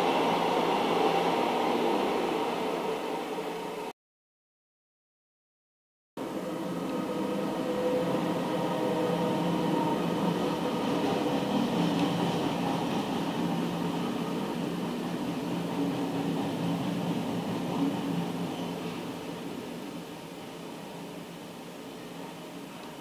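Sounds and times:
train wheels rumbling on rails: 0:06.2 - 0:20.2.

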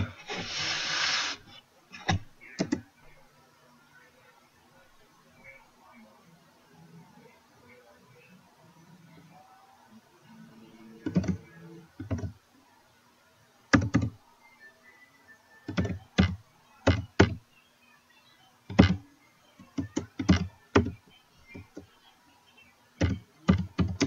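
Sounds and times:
computer keyboard typing: 0:11.0 - 0:11.4, 0:12.0 - 0:12.3, 0:13.7 - 0:14.1, 0:15.7 - 0:17.4, 0:19.6 - 0:21.8, 0:23.0 - 0:24.0.

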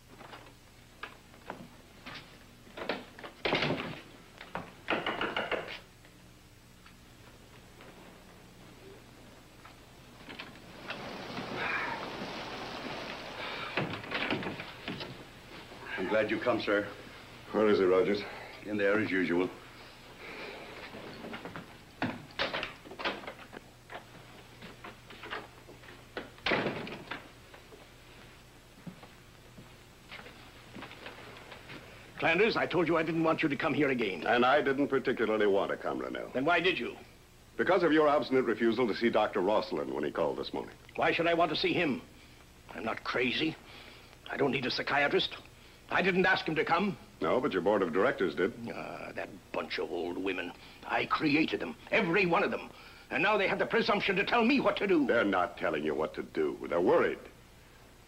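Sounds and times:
door opening and shutting: 0:02.8 - 0:04.1, 0:10.2 - 0:15.2, 0:22.0 - 0:23.5, 0:26.2 - 0:27.3
footsteps: 0:09.6 - 0:16.2, 0:27.2 - 0:32.0
door shutting with a thud: 0:26.4 - 0:27.2.

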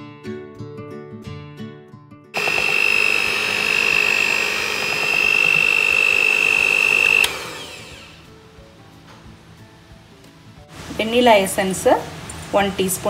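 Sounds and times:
soft acoustic guitar music: 0:00.0 - 0:02.3
electric hand mixer whining: 0:02.4 - 0:08.2.

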